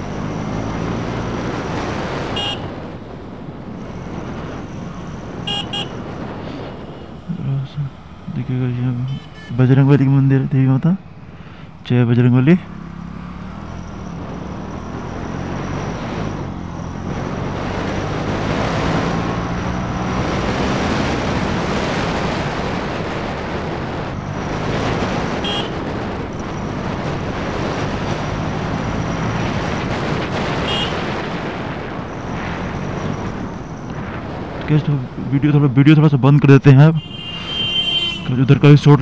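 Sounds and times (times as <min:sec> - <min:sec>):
motorcycle engine revving: 0:00.0 - 0:03.0, 0:12.2 - 0:34.5
wind noise on microphone: 0:13.9 - 0:35.4.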